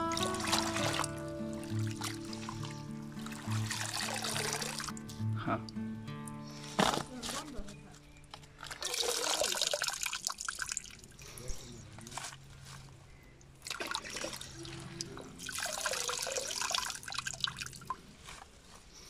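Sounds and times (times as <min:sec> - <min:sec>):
water splashing into a bucket: 0:00.0 - 0:05.0, 0:08.6 - 0:11.2, 0:13.6 - 0:18.0.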